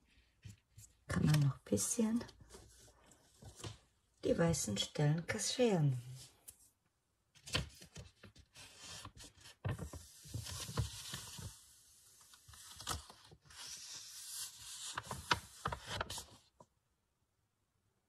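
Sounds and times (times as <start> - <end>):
paper rustling and crackling: 7.4 - 16.6.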